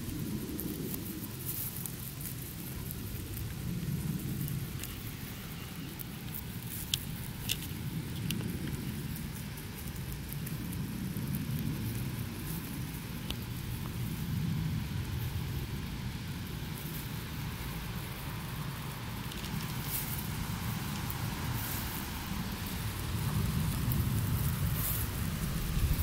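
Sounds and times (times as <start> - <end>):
low rumble: 0.0 - 26.0
rabbits chewing grass: 0.0 - 26.0.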